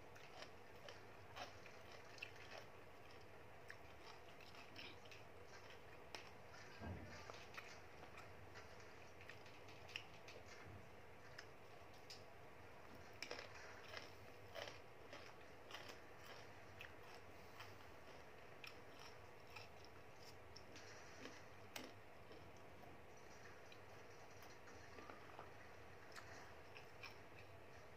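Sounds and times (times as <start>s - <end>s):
chewing: 0.0s - 27.9s.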